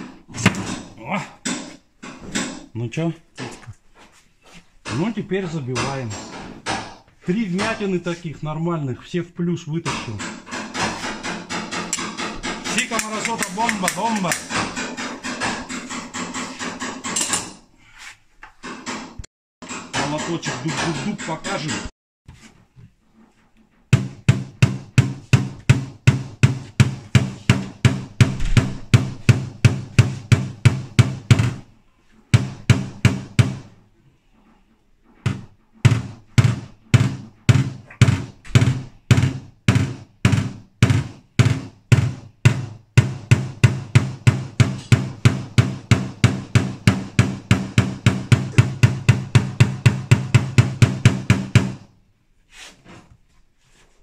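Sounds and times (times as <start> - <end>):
hammer tapping metal punch: 9.9 - 17.6, 32.4 - 33.8, 35.2 - 51.9.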